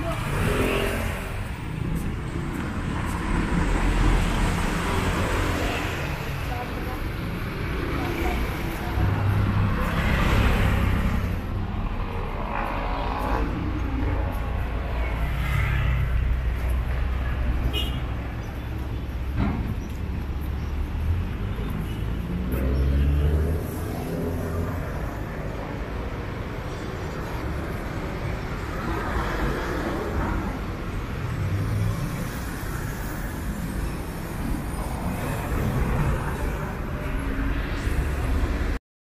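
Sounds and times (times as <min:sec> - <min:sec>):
vehicles passing: 0:00.0 - 0:38.8.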